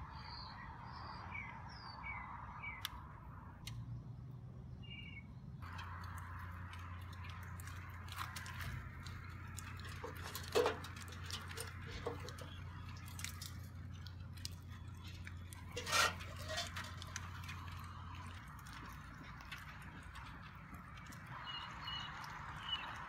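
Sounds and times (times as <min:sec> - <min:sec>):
low steady hum: 0:02.8 - 0:23.0
metal clanks and taps: 0:09.5 - 0:12.7.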